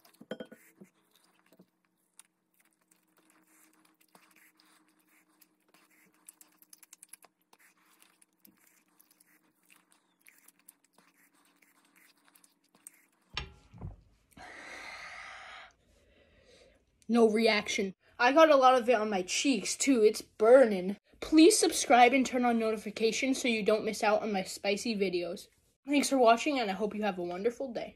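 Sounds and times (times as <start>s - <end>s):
wet chewing clicks and smacks: 0.8s - 13.4s.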